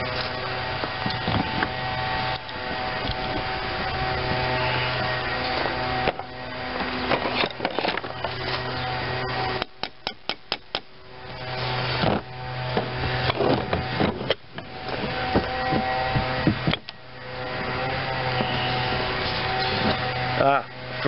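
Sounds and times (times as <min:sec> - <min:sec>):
steady low hum: 0:00.0 - 0:21.0
metal parts scraping and knocking: 0:07.0 - 0:08.6.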